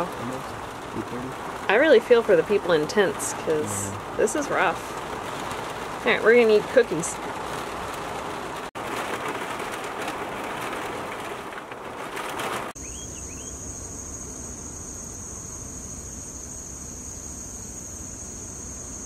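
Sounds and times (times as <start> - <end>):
heavy rain on trailer roof: 0.0 - 12.8
short bird chirps: 12.8 - 13.6
high-pitched insect trill: 12.8 - 19.0.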